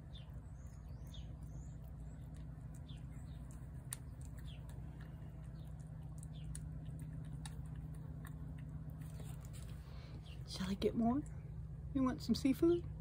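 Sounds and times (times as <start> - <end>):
cat chewing and licking: 0.0 - 10.4
steady low hum: 0.0 - 13.0.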